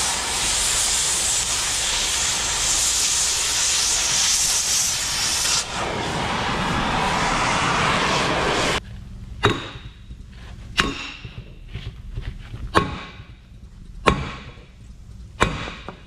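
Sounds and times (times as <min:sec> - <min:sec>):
gas torch flame hissing: 0:00.0 - 0:08.8
sledgehammer blows on steel: 0:09.4 - 0:11.7.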